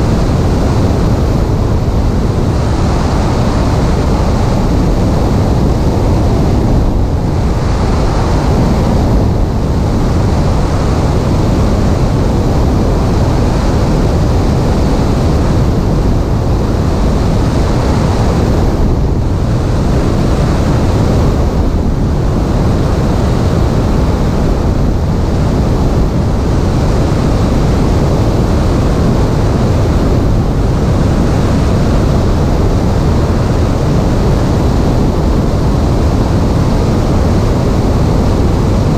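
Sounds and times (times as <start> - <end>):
light plane engine and propeller: 0.0 - 38.9
wind rushing over microphone: 0.0 - 38.9.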